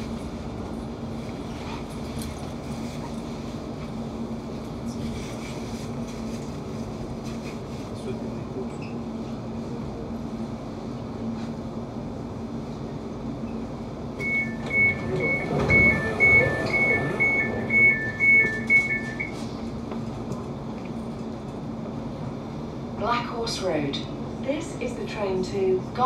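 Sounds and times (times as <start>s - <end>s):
standing train hum: 0.0s - 26.0s
two-tone door warning beeping: 14.2s - 19.4s.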